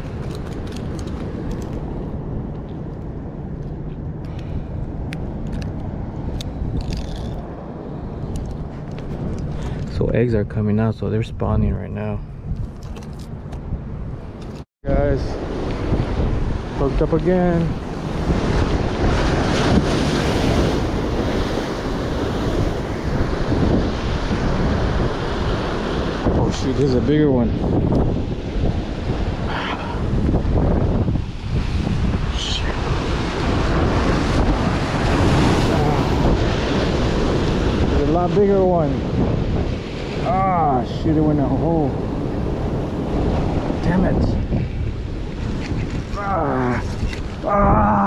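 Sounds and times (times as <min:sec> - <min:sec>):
wind: 0:00.0 - 0:48.0.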